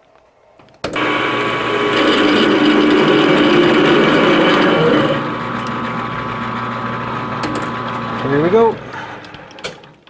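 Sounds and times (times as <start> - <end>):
lathe drilling into metal: 1.0 - 9.6.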